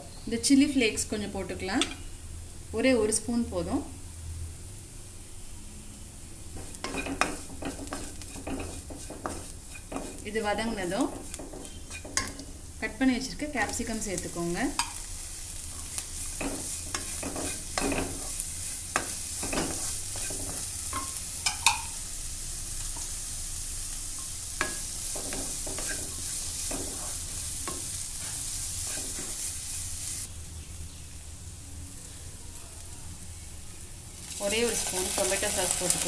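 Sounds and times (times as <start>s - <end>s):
vegetables sizzling in a pan: 0.0s - 36.0s
wooden spatula scraping pan: 6.6s - 12.4s, 24.7s - 29.8s.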